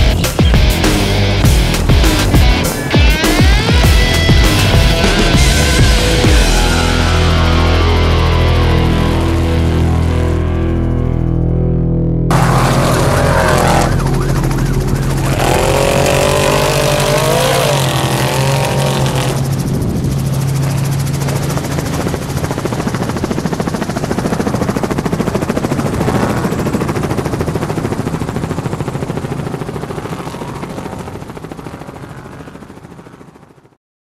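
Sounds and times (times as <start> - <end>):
truck engines racing: 12.3 - 22.8.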